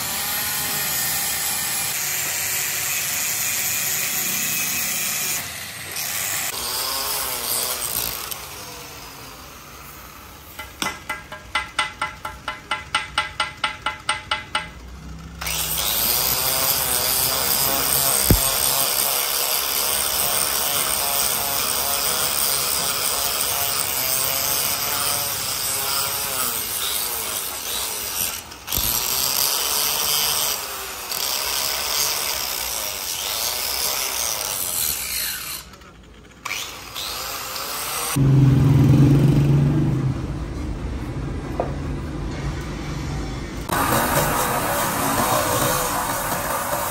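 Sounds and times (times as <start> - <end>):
angle grinder whining: 0.0 - 11.4, 14.8 - 40.2, 43.5 - 46.9
loud low hum: 38.2 - 46.8.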